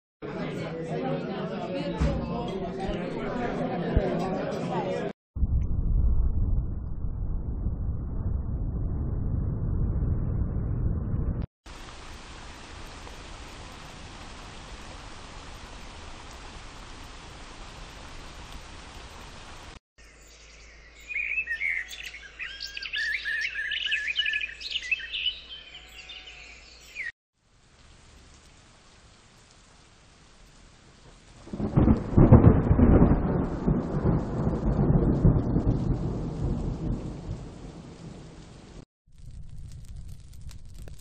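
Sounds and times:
thunder roll: 0:05.4 - 0:11.5, 0:31.4 - 0:41.0
rain hiss: 0:11.7 - 0:19.8, 0:27.4 - 0:32.4
birdsong chirping: 0:20.0 - 0:27.1.

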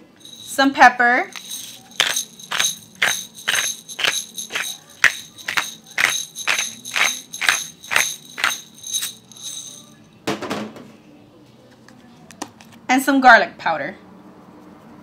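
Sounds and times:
pepper mill grinding: 0:00.2 - 0:00.7, 0:01.3 - 0:09.9.

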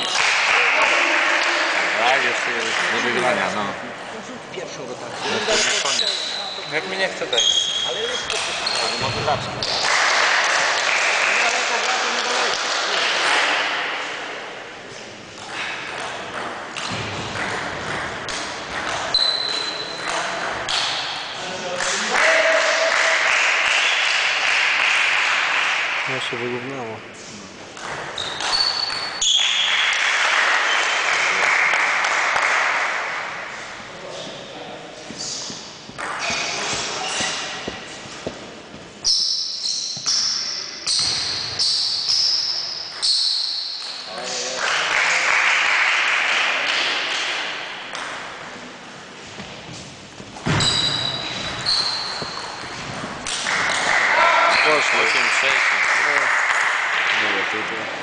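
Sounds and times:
high-pitched squeak: 0:05.4 - 0:09.2, 0:50.5 - 0:52.5.

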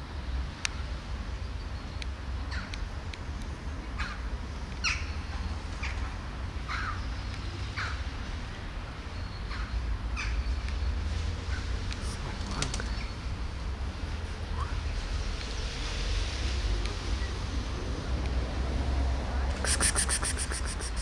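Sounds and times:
harsh bird calls: 0:19.5 - 0:21.0.

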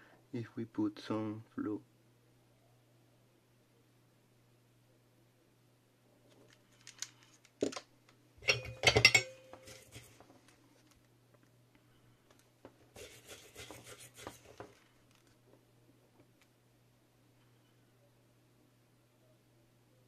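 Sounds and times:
faint steady hum: 0:00.0 - 0:20.0
metal and plastic clinks: 0:08.4 - 0:09.6
tools scraping and rubbing: 0:08.4 - 0:10.3, 0:12.9 - 0:14.8.

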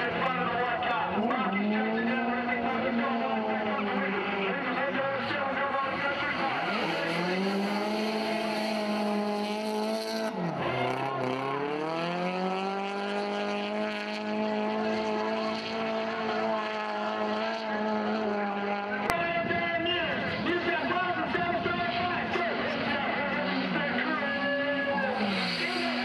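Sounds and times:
car engine at high revs: 0:00.0 - 0:19.2, 0:20.1 - 0:26.0
tyre squeal: 0:25.1 - 0:26.0.

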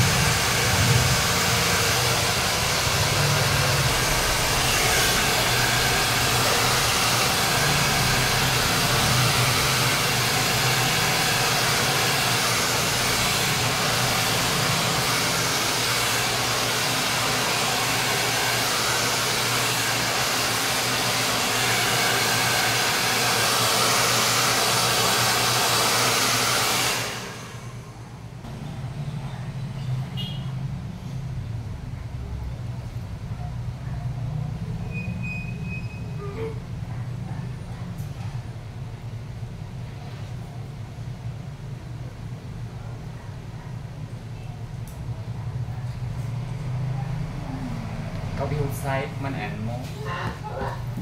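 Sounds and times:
hair dryer blowing: 0:00.0 - 0:28.2.

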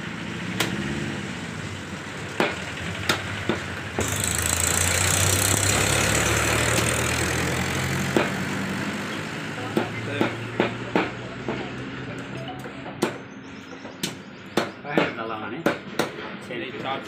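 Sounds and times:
loud engine noise with hiss: 0:00.0 - 0:12.9.

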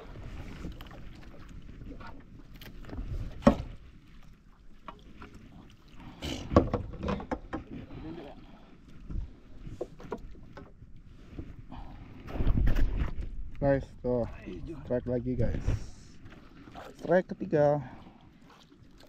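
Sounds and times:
knocks and clatter on boat: 0:00.0 - 0:03.9, 0:06.3 - 0:08.0, 0:09.0 - 0:11.6.

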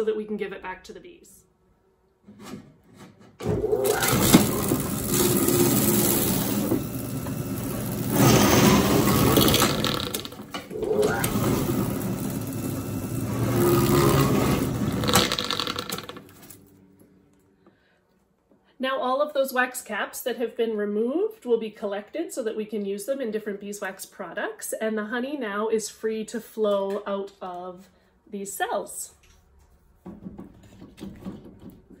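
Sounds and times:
flail uncapper running: 0:03.5 - 0:16.6.

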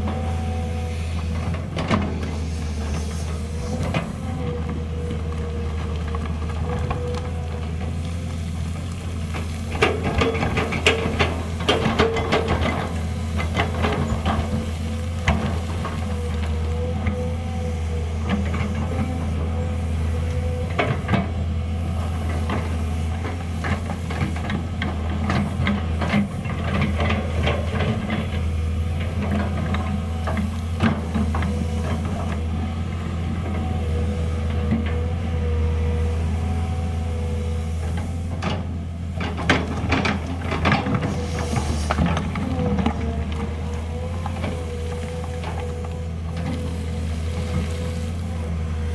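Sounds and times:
excavator diesel engine running: 0:00.0 - 0:48.9
bucket clanking and scraping rock: 0:39.3 - 0:48.3.

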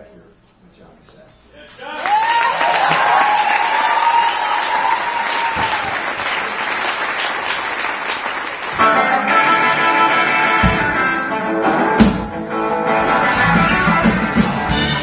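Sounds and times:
audience applauding: 0:01.9 - 0:09.3
rock and roll band playing: 0:08.7 - 0:15.0.

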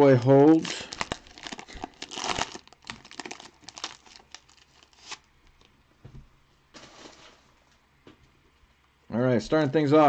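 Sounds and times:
card pack wrapper tearing: 0:00.5 - 0:05.3.

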